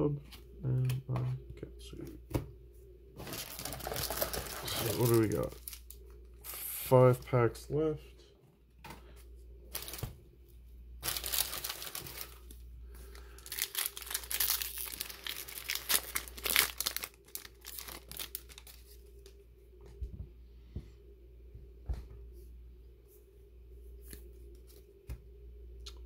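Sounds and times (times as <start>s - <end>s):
foil wrapper tearing and crinkling: 3.2s - 6.0s, 11.0s - 19.0s.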